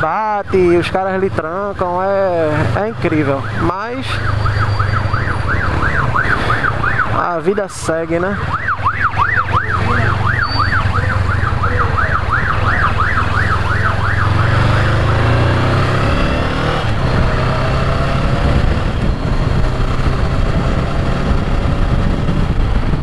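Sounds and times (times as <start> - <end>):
motorcycle engine hum: 0.0 - 23.0
road noise: 0.0 - 23.0
ambulance siren yelping: 3.1 - 16.8
wind noise: 15.9 - 23.0.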